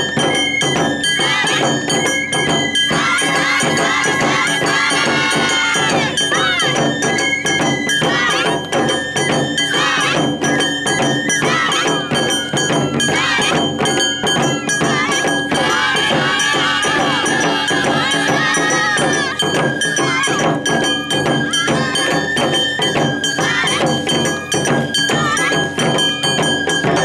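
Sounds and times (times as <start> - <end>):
drums beating quick rhythm: 0.0 - 27.0
rattling percussion: 0.0 - 27.0.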